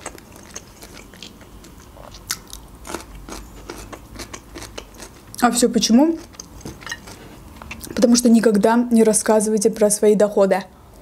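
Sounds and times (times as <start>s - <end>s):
person chewing wetly: 0.0s - 5.4s, 6.2s - 8.0s.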